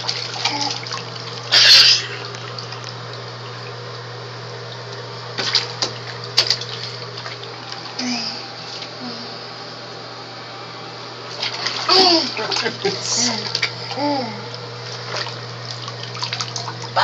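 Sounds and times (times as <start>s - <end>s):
bath water splashing: 0.0s - 7.9s, 11.3s - 13.9s, 14.8s - 17.0s
steady low hum: 0.0s - 17.0s.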